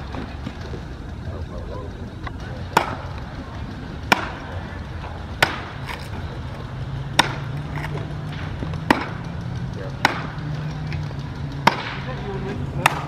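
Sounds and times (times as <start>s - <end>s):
axe striking wood: 5.4s - 6.0s, 7.2s - 9.2s, 10.0s - 10.3s, 11.6s - 12.0s.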